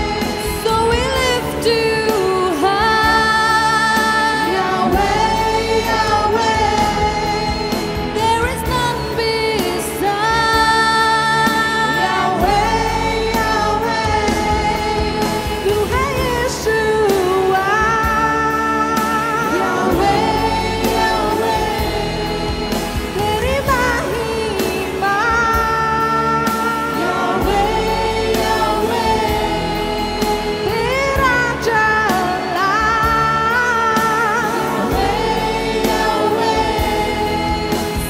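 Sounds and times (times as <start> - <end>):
group singing worship song: 0.0 - 38.0
instrumental backing: 0.0 - 38.0.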